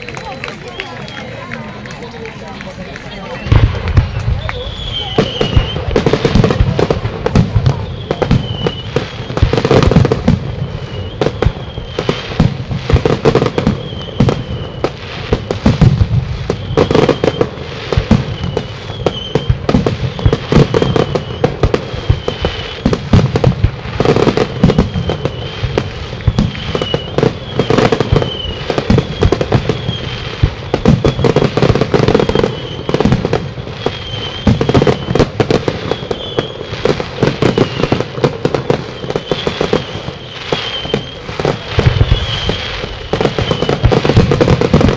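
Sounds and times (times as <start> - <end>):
fireworks bangs and crackles: 0.0 - 44.9
heavy firework booms: 3.5 - 44.9.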